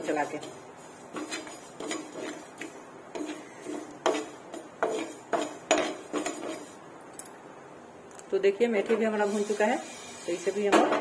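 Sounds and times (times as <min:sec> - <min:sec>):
metal spatula scraping frying pan: 0:00.0 - 0:06.8.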